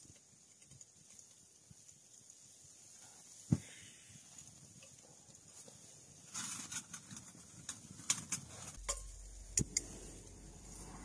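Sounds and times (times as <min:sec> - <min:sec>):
sharp clicks and crackles: 0:00.0 - 0:03.4, 0:04.2 - 0:11.0
low steady burner sound: 0:00.0 - 0:11.0
rush of stove flame: 0:02.8 - 0:11.0.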